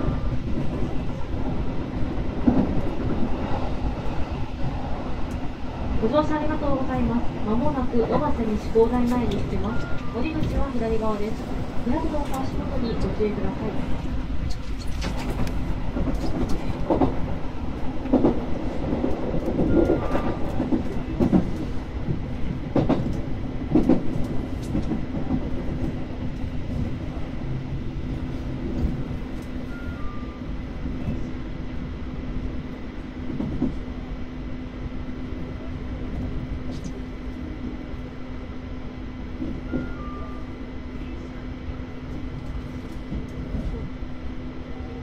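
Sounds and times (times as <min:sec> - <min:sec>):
electric train hum: 0:00.0 - 0:45.0
train wheels clacking: 0:18.0 - 0:26.0.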